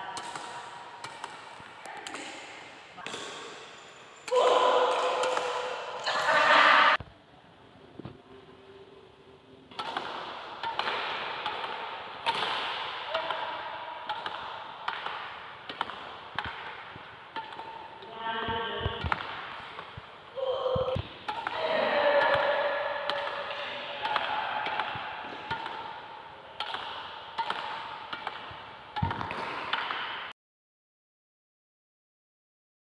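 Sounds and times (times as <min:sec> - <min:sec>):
racket hitting shuttlecock against wall: 0:00.0 - 0:06.0, 0:09.7 - 0:20.1, 0:20.8 - 0:30.3.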